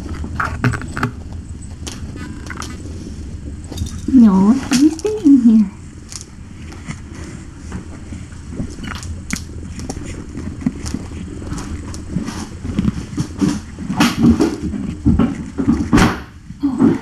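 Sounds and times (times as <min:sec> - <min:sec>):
kittens scuffling on bedding: 0:06.2 - 0:16.6.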